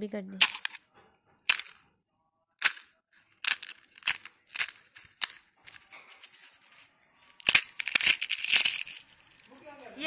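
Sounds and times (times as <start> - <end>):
crisp fried shells cracking: 2.6 - 5.9, 7.3 - 9.5.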